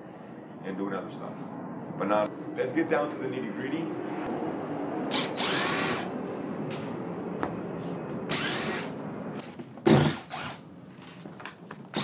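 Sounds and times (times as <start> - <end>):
cordless drill spinning: 5.1 - 6.1, 8.3 - 8.9, 9.9 - 10.6.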